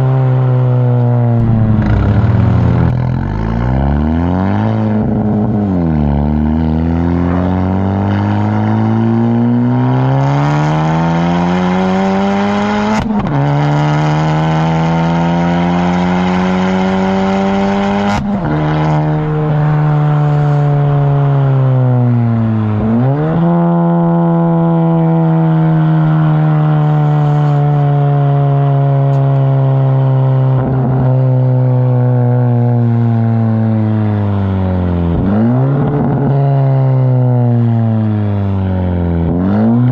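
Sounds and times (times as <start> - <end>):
car engine accelerating hard: 0.0 - 39.9
exhaust crack at upshifts: 1.3 - 6.1.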